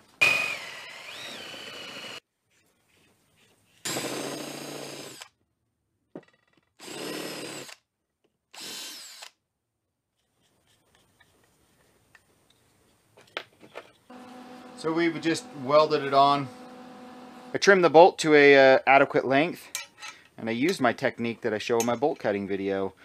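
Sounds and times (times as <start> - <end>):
cordless drill drilling steel: 0.2 - 2.2, 3.8 - 5.3, 6.8 - 7.8, 8.5 - 9.4, 14.1 - 18.0.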